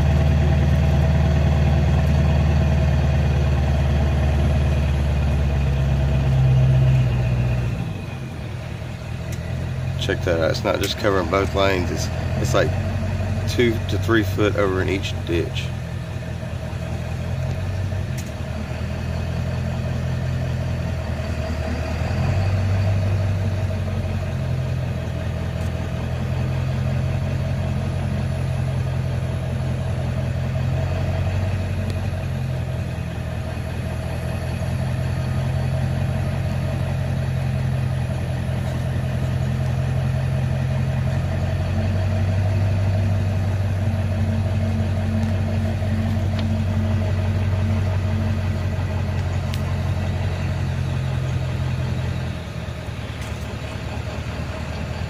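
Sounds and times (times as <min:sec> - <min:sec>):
vehicle engine droning: 0:00.0 - 0:55.0.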